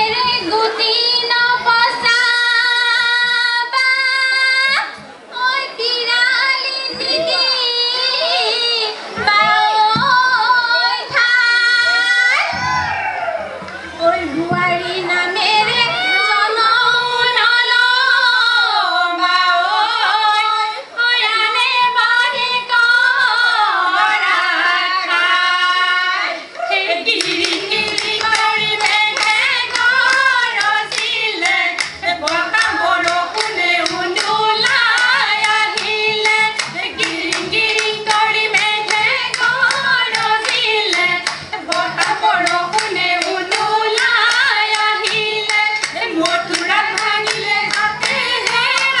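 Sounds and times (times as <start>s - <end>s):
women singing: 0.0s - 49.0s
rhythmic clapping: 21.4s - 49.0s.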